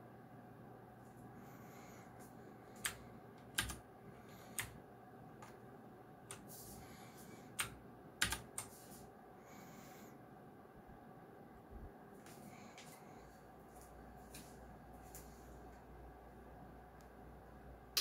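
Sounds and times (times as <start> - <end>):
mechanical keyboard clicks: 2.8 - 3.8.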